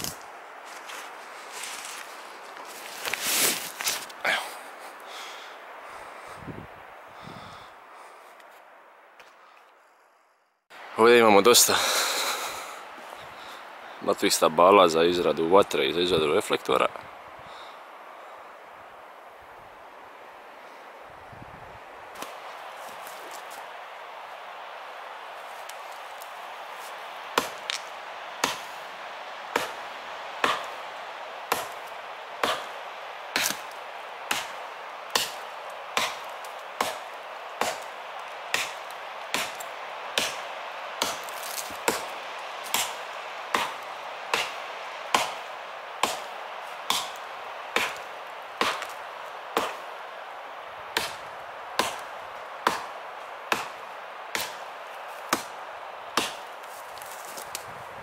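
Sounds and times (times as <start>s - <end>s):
steady background hiss: 0.0s - 58.0s
axe chopping into log: 27.4s - 28.7s, 30.4s - 30.7s, 32.4s - 32.7s, 33.4s - 33.7s, 34.3s - 35.4s, 36.0s - 37.9s, 38.5s - 39.6s, 42.7s - 45.4s, 46.0s - 46.3s, 46.9s - 47.2s, 48.6s - 48.9s, 49.6s - 49.8s, 51.8s - 52.9s, 53.5s - 54.6s, 56.2s - 56.4s.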